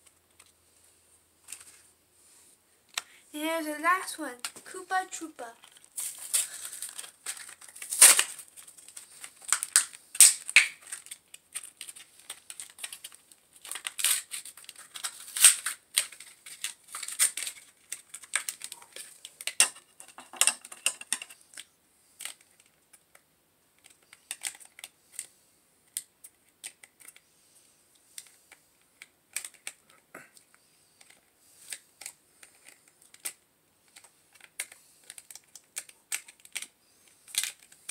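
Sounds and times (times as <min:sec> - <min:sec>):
packaging clicks and crinkles: 0:04.3 - 0:23.2, 0:23.8 - 0:25.3, 0:25.9 - 0:27.2, 0:28.1 - 0:37.9
scissors snipping packaging: 0:05.7 - 0:18.8.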